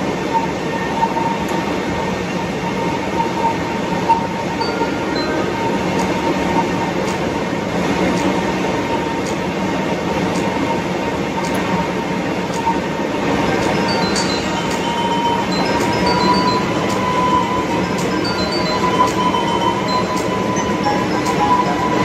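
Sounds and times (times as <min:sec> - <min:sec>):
jet engines running: 0:01.6 - 0:22.0
faint steady whine: 0:11.4 - 0:22.0.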